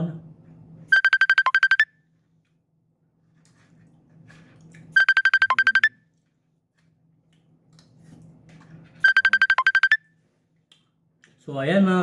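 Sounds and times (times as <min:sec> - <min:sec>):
phone ringtone beeps: 0:00.9 - 0:01.9, 0:05.0 - 0:06.0, 0:09.0 - 0:10.0.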